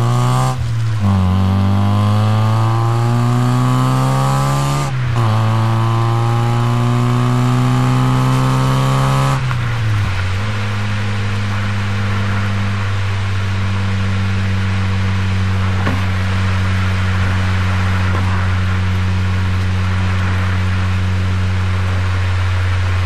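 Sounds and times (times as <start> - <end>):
car engine exhaust accelerating: 0.0 - 23.0.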